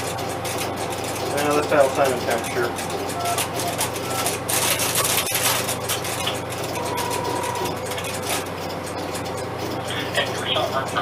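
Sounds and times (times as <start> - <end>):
electrical hum: 0.0 - 11.0
relays clattering clicks: 0.4 - 11.0
brief steady tone: 6.7 - 7.8.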